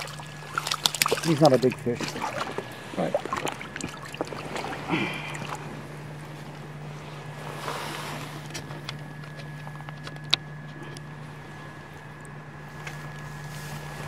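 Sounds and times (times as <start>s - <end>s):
light water splashing: 0.0s - 6.6s
steady hum: 0.0s - 14.0s.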